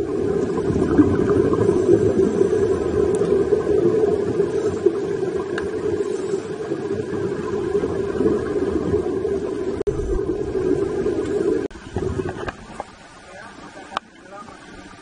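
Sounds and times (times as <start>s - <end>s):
muffled underwater noise: 0.0s - 15.0s.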